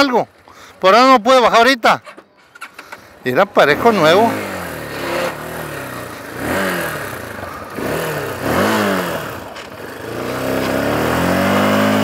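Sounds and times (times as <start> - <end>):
motorcycle engine revving: 2.4 - 12.0.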